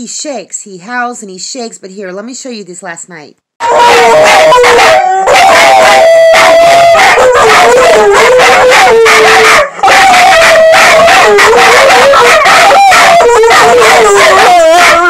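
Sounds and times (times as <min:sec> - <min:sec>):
dogs howling: 0:03.6 - 0:15.0.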